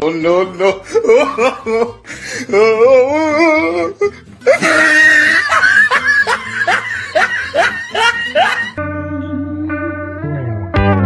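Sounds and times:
person laughing in whoops: 0:00.9 - 0:08.8.

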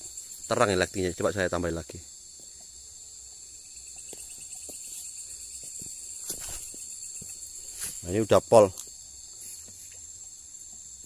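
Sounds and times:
night insects chorus: 0:00.0 - 0:11.0.

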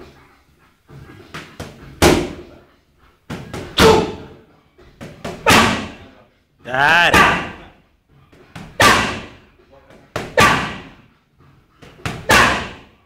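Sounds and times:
boxing punches landing: 0:02.0 - 0:02.4, 0:03.3 - 0:04.3, 0:11.9 - 0:12.9.

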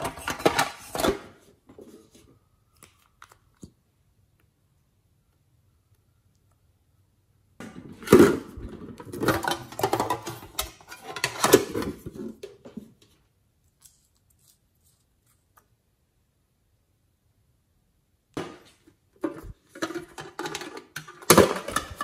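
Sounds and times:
metal tin rattling and knocking: 0:09.0 - 0:12.0, 0:19.3 - 0:22.0.

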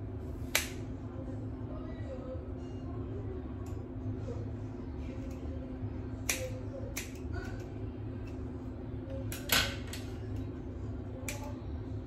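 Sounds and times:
steady low hum: 0:00.0 - 0:12.0
scissors snipping hair: 0:00.5 - 0:00.9, 0:03.6 - 0:03.8, 0:05.1 - 0:05.5, 0:06.2 - 0:08.4, 0:11.2 - 0:11.6.

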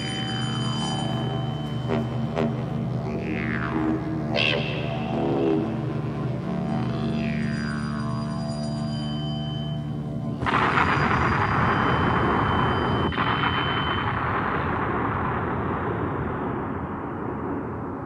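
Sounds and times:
faint high steady tone: 0:00.0 - 0:03.2, 0:06.8 - 0:10.4.

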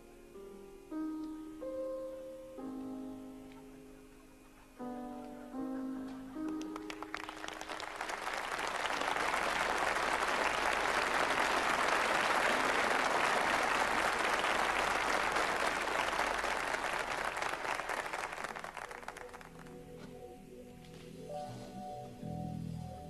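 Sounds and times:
audience applause: 0:06.4 - 0:19.8.

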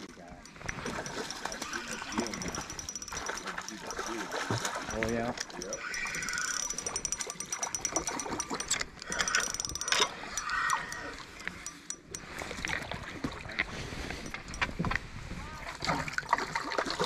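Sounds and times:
fishing reel clicking: 0:00.4 - 0:12.8, 0:14.1 - 0:14.9.

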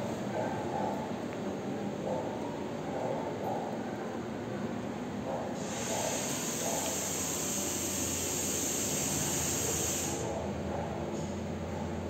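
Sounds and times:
steam generator hissing: 0:05.6 - 0:10.5.

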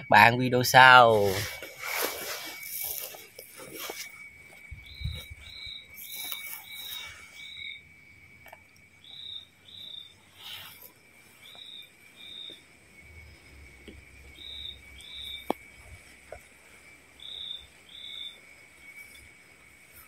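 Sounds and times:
high-pitched insect drone: 0:00.0 - 0:20.0
insects chirping: 0:00.0 - 0:20.0
rustling: 0:01.0 - 0:07.7.

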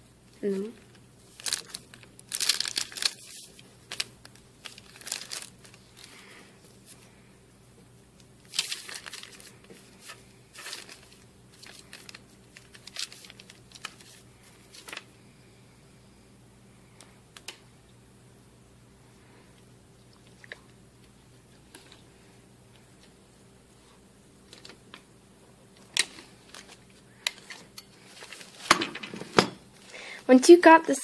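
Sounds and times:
wax paper crinkling: 0:00.2 - 0:07.2, 0:08.1 - 0:15.1, 0:25.8 - 0:28.7.

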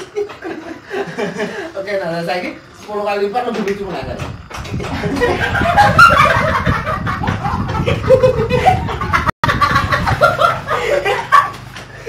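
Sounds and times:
people laughing loudly: 0:00.0 - 0:01.8, 0:04.6 - 0:12.0.

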